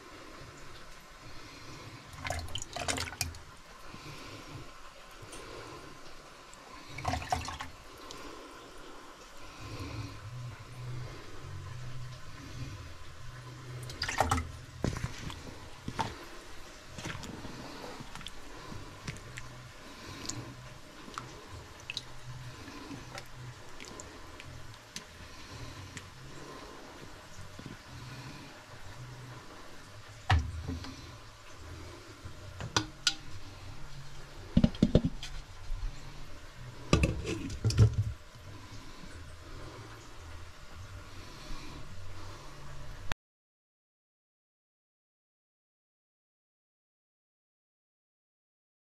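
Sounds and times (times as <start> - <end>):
stew sloshing: 1.4 - 4.8, 6.7 - 8.4, 13.6 - 28.4
ladle knocking metal pot: 32.7 - 33.2, 34.6 - 35.2, 37.0 - 38.1
spoon scraping pan: 37.0 - 37.8.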